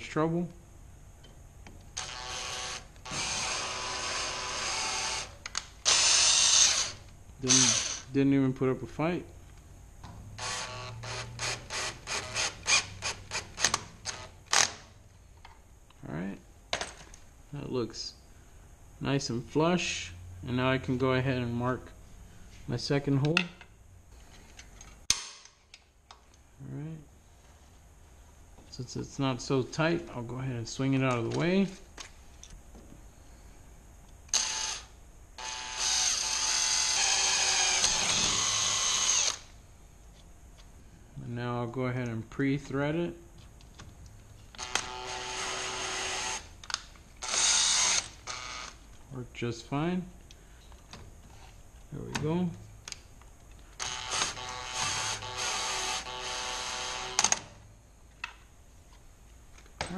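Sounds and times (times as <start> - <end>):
cordless drill short bursts: 2.0 - 8.1, 10.4 - 14.3, 34.3 - 39.5, 44.6 - 46.5, 47.2 - 48.8, 53.8 - 57.4.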